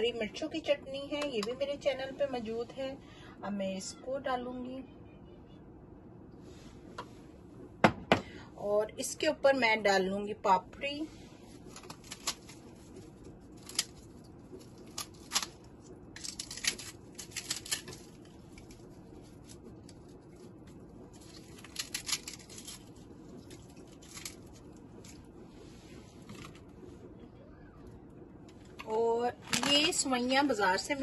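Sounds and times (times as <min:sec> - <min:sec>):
crisp wafers crackling and snapping: 0:11.6 - 0:25.2.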